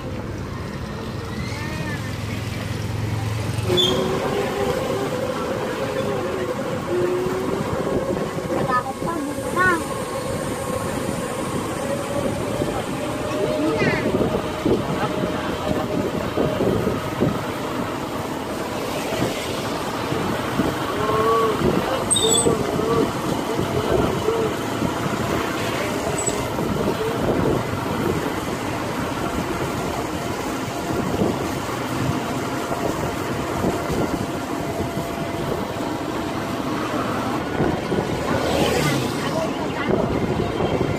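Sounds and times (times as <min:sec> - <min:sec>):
wind noise: 0:03.9 - 0:40.9.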